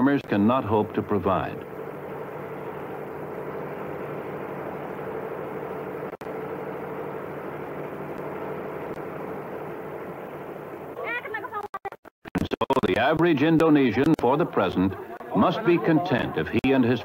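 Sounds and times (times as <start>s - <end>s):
machinery humming: 0.0s - 11.0s.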